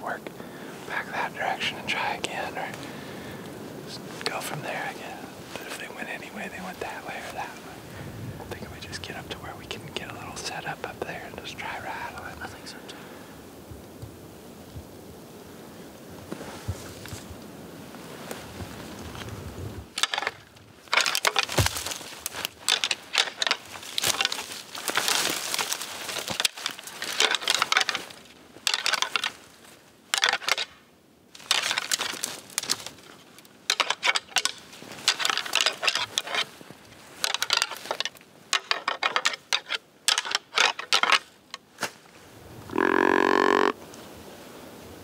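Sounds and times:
clattering and rustling in dry brush: 0.3 - 13.0, 16.2 - 42.7
deer grunt call: 42.7 - 43.8.

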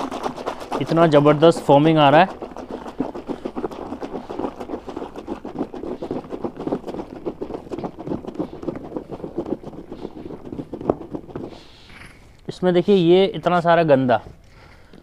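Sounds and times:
hand sloshing soapy water: 0.0 - 11.9.

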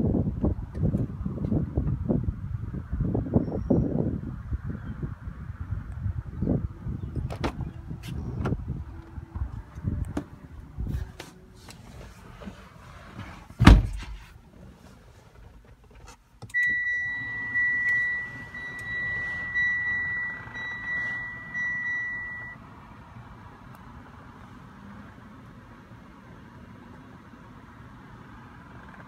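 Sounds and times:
car door thudding shut: 7.2 - 7.7, 13.5 - 14.3
dashboard chime beeping: 16.6 - 22.6.

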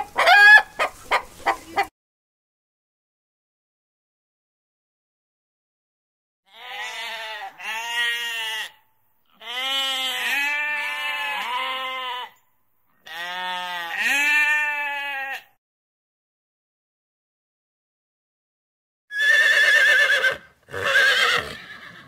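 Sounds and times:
sheep bleating: 6.5 - 12.4, 13.0 - 15.5.

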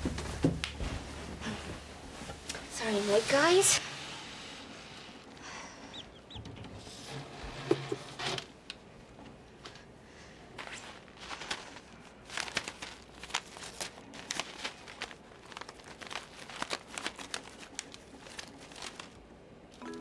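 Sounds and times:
paper crinkling and rustling: 10.6 - 19.3.

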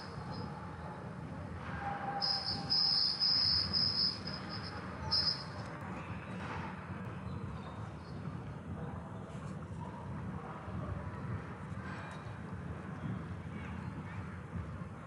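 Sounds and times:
low steady hall hum: 0.0 - 15.0
high-pitched electronic beeps: 2.2 - 5.6.

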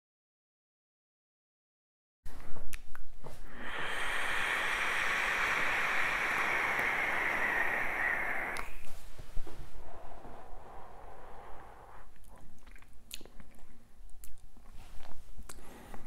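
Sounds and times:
hiss of vapour drawn through: 3.3 - 12.2.

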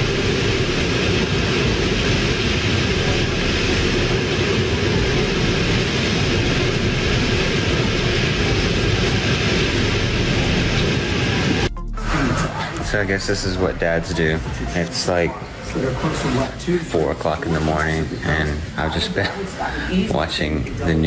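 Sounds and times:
strong wind through trees: 0.0 - 11.7
heavy rain: 0.0 - 21.0.

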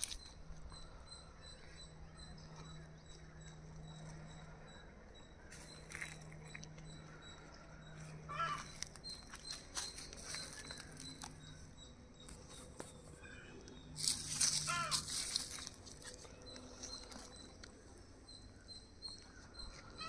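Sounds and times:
bird harsh call: 8.3 - 8.7, 14.4 - 15.3
rustling: 14.0 - 17.5.

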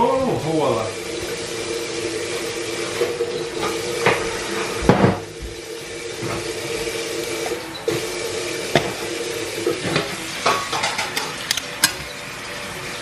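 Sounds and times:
kitchen hiss with low hum: 0.0 - 13.0
dishes clinking: 8.7 - 9.0, 9.7 - 12.2.

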